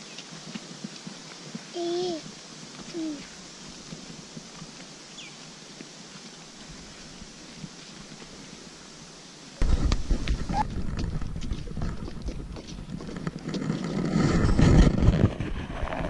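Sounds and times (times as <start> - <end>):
footsteps: 0.0 - 8.5, 9.6 - 16.0
quiet hiss: 0.0 - 11.9
wind rumbling on microphone: 9.6 - 16.0.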